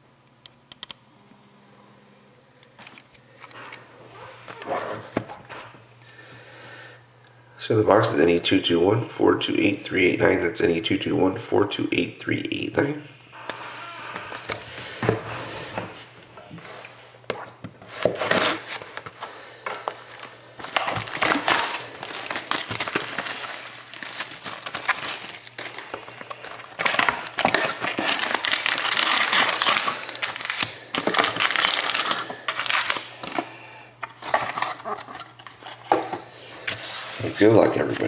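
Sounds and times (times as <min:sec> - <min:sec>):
plastic wrap crinkling: 0:18.0 - 0:33.4.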